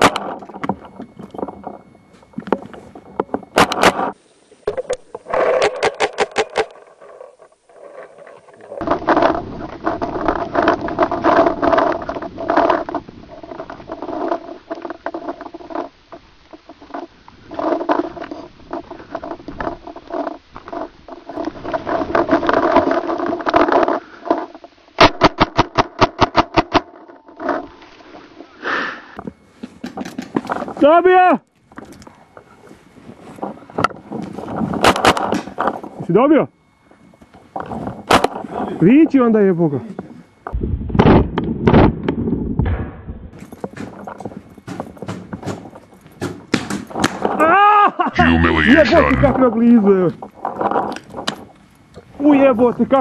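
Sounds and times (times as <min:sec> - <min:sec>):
noisy movement: 0:00.0 - 0:31.0, 0:31.6 - 0:40.6, 0:48.1 - 0:53.0.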